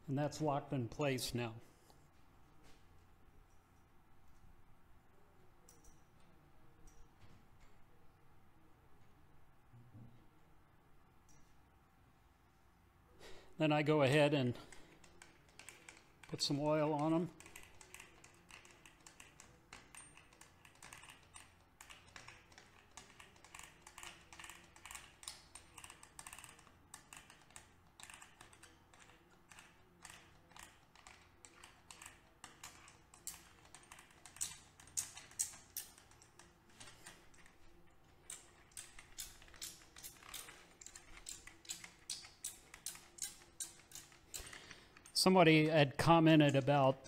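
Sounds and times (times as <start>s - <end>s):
oil can pump clicks: 38.2s - 45.2s.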